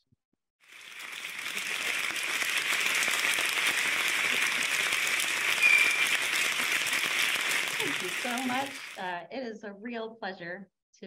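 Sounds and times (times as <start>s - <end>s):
audience applauding: 0.7s - 9.0s.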